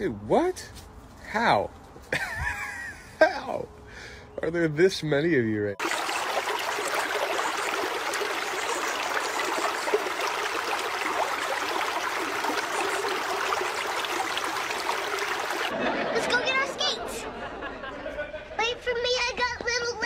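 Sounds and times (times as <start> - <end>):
water rushing over spillway: 5.8 - 15.7.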